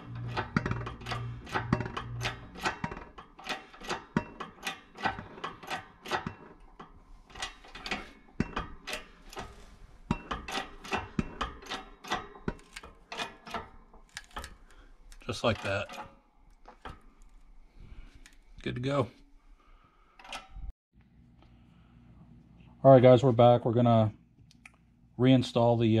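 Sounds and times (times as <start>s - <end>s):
shop press metallic clicks and knocks: 0.0s - 14.6s.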